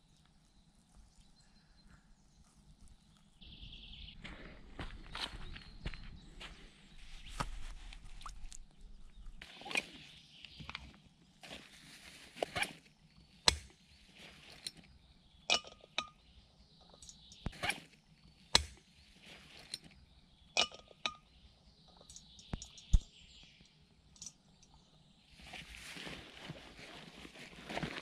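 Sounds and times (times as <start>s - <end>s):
rustling in backpack: 11.4s - 13.0s, 14.0s - 14.7s, 25.4s - 28.0s
metallic clicks and clinks: 24.2s - 24.4s.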